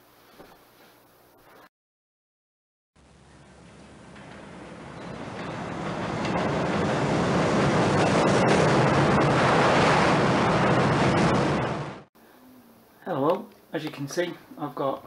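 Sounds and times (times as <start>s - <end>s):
model train rumbling: 3.0s - 12.1s.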